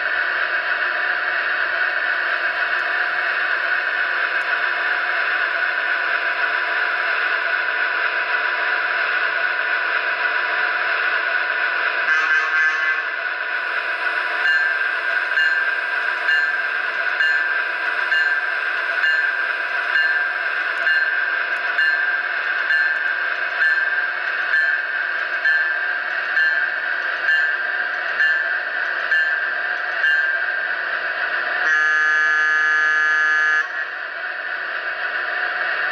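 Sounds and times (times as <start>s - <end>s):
model locomotive hum: 0.0s - 35.9s
locomotive horn blast: 12.1s - 13.2s, 31.6s - 33.8s.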